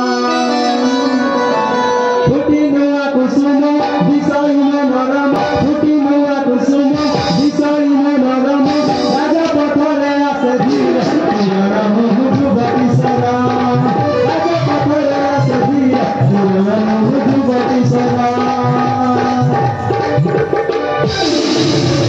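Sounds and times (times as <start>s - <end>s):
quick drumming: 3.4s - 22.0s
dance music: 6.7s - 22.0s.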